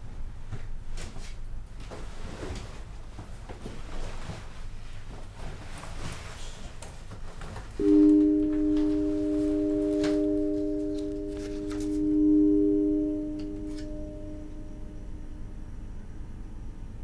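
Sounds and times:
sustained film score drone: 7.8s - 17.0s.

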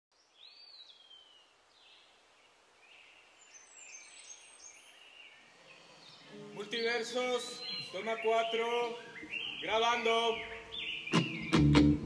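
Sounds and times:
birds singing: 0.1s - 12.0s
background hiss: 0.2s - 12.0s.

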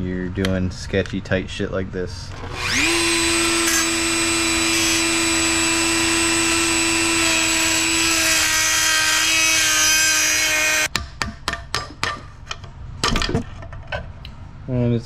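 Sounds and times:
rotary tool grinding bolt: 2.3s - 10.9s.

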